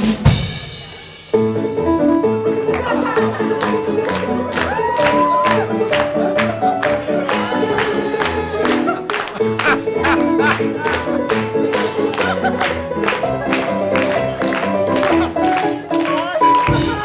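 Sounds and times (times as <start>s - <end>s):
drum beat: 13.5s - 17.0s.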